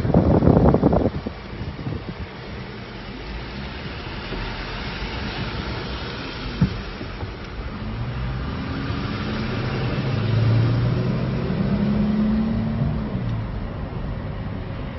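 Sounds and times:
tyres hissing through water: 2.6s - 10.0s.

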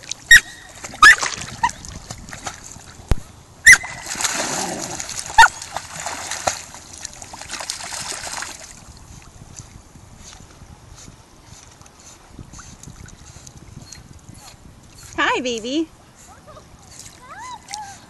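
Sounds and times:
dogs splashing in water: 0.0s - 3.0s, 3.6s - 8.8s.

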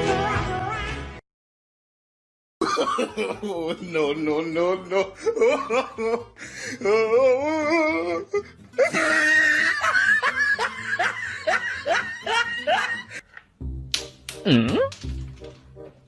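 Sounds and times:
background music: 0.0s - 1.2s, 2.6s - 16.0s
people laughing: 2.6s - 6.3s, 8.8s - 13.2s.

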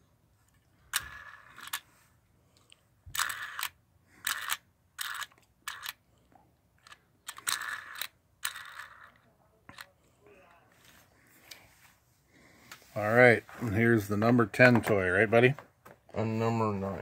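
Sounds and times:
plastic toy clicking rattles: 0.9s - 1.8s, 3.1s - 6.0s, 6.8s - 9.9s.

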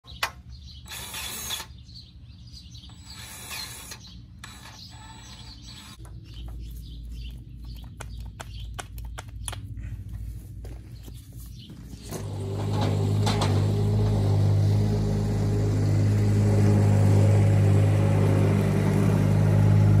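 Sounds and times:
low hum: 5.7s - 20.0s
cordless grease gun running: 12.0s - 20.0s.

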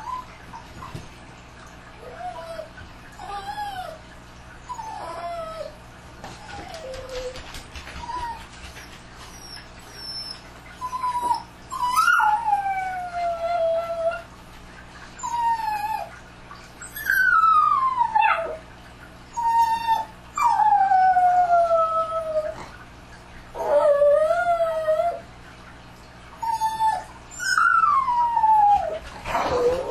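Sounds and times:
dogs howling: 9.4s - 14.3s, 16.9s - 18.6s, 23.6s - 25.3s, 26.4s - 29.9s.

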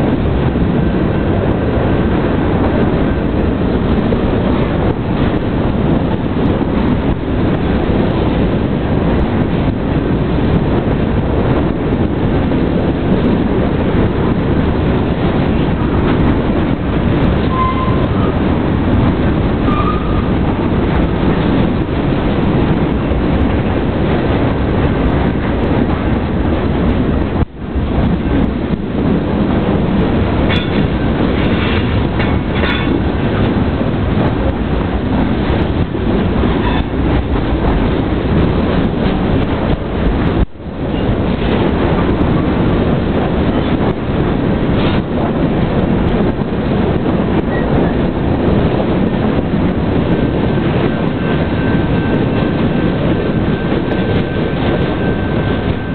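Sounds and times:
train wheels rumbling on rails: 0.0s - 55.9s
high wheel squeals: 17.4s - 18.4s, 19.6s - 20.4s
wheels clacking over rail joints: 28.1s - 55.9s.

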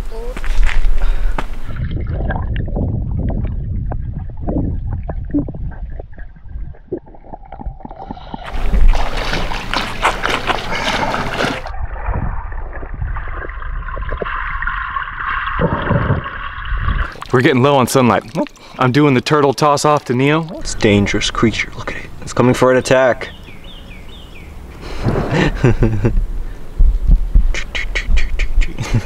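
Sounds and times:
water splashing and sloshing: 1.5s - 22.4s
muffled underwater rushing: 1.6s - 17.6s.

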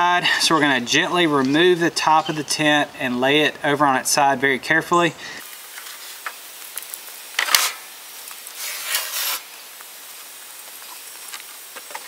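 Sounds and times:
scraping rustle: 7.4s - 9.6s.

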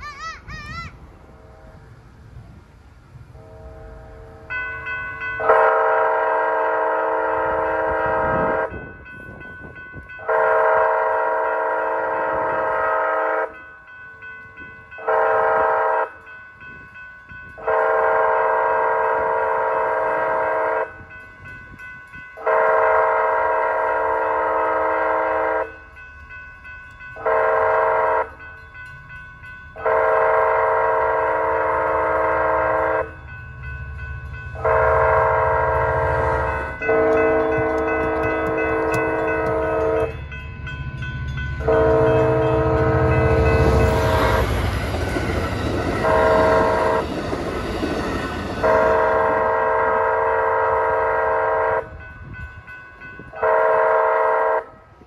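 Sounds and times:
train rumble: 0.0s - 55.0s
train air horn blasts: 3.3s - 4.5s, 5.4s - 8.9s, 10.2s - 13.6s, 15.0s - 16.2s, 17.6s - 21.0s, 22.4s - 25.8s, 27.2s - 28.4s, 29.8s - 33.2s, 34.5s - 40.2s, 41.6s - 44.9s, 46.0s - 47.1s, 48.5s - 52.1s, 53.3s - 55.0s.

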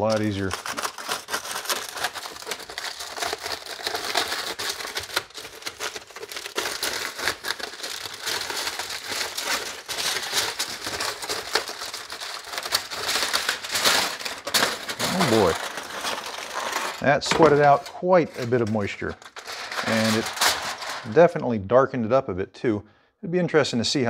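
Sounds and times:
aluminum foil crinkling: 0.0s - 21.2s.

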